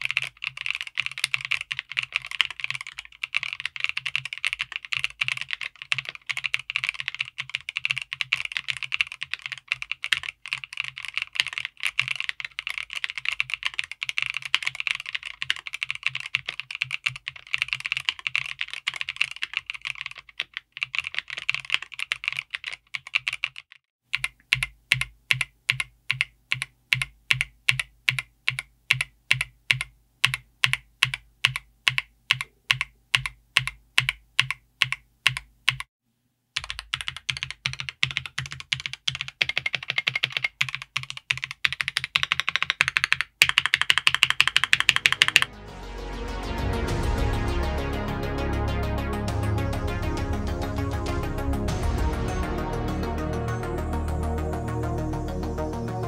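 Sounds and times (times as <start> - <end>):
fast mechanical keyboard typing: 0.0 - 35.9, 36.6 - 45.5.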